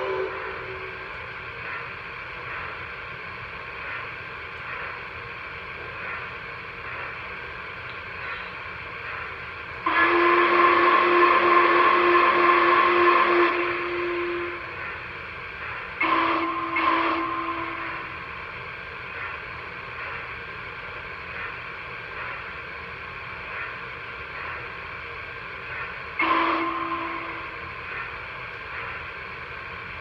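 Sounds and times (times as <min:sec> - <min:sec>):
model steam whistle blasts: 0:00.0 - 0:01.1, 0:09.8 - 0:14.8, 0:16.0 - 0:18.2, 0:26.2 - 0:27.7
steady hiss: 0:00.0 - 0:30.0.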